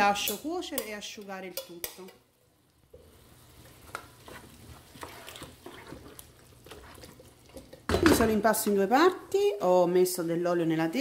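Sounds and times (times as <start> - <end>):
faint sizzle: 0.0 - 11.0
wooden spoon scraping pan: 3.7 - 8.9.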